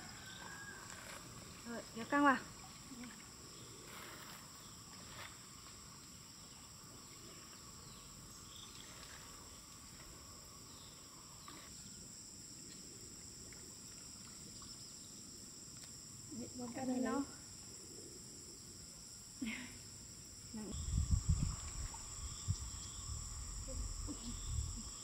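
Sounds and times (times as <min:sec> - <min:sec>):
insects chorus: 0:00.0 - 0:25.0.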